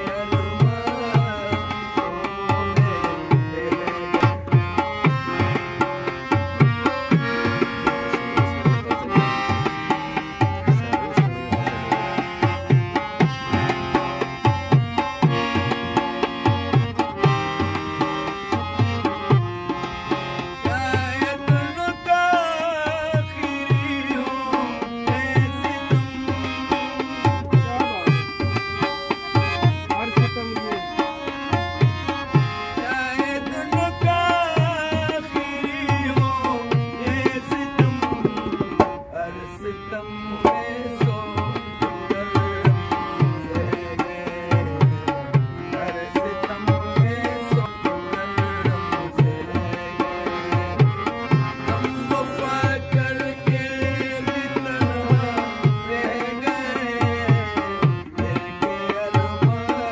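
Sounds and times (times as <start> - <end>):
harmonium melody: 0.0 - 59.9.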